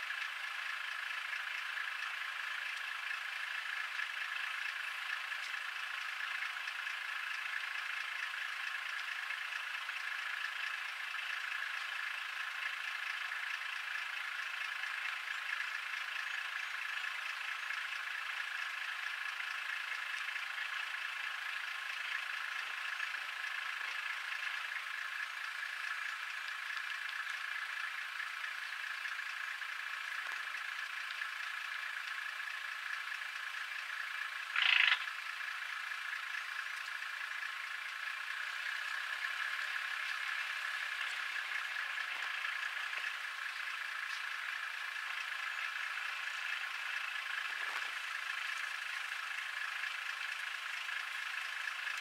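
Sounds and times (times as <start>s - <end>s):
high-pitched animal chorus: 34.5s - 35.2s.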